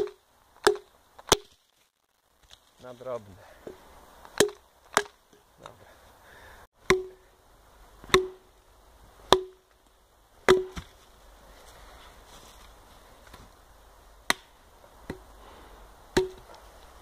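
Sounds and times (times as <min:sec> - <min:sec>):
hatchet chopping wood: 0:00.0 - 0:01.6, 0:04.4 - 0:05.2, 0:06.8 - 0:07.2, 0:08.0 - 0:08.5, 0:09.3 - 0:09.7, 0:10.5 - 0:10.9, 0:14.3 - 0:15.3, 0:16.2 - 0:16.5.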